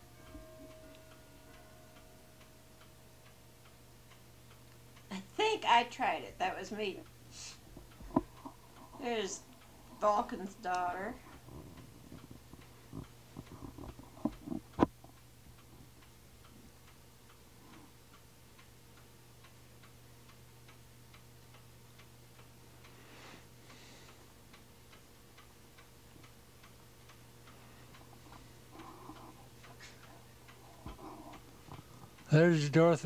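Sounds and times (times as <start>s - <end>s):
soft hiss: 0.0s - 13.6s
faint ticking: 0.0s - 33.0s.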